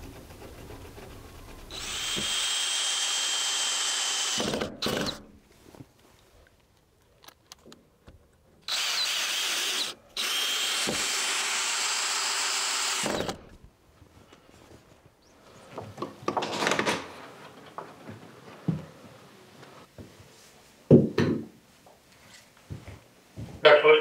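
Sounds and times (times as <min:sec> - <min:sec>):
power tool running: 0:01.7 - 0:05.2, 0:08.7 - 0:13.4.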